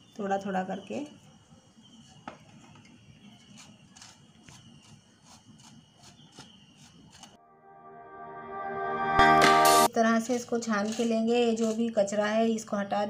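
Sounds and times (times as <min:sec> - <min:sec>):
spatula scraping metal mesh sieve: 0:10.7 - 0:11.9.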